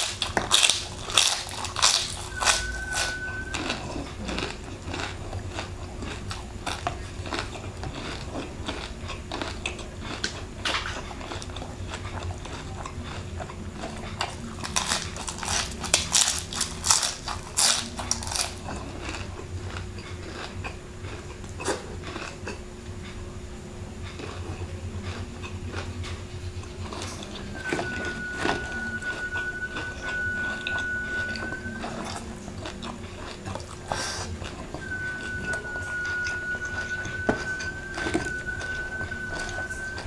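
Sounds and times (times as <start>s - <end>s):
crunchy chewing: 0.0s - 40.0s.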